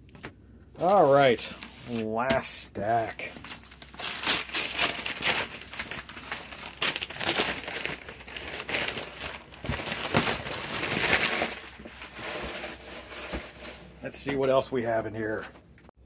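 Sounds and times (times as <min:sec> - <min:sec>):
paper wrapping crinkling: 0:03.2 - 0:14.4.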